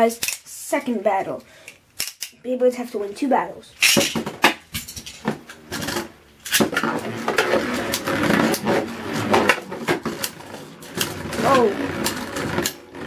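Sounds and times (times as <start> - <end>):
rip-cord launcher: 3.8 - 13.0
spinning tops whirring on plastic: 5.0 - 13.0.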